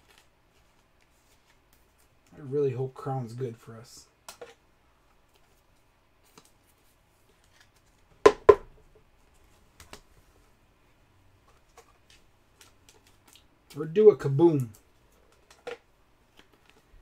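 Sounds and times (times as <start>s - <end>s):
cards tapped on table: 8.3s - 8.7s.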